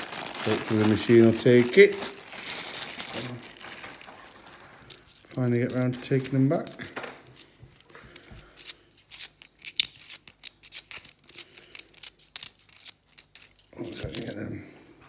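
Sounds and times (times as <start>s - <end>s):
coins clicking together: 2.4s - 4.1s, 4.9s - 14.4s.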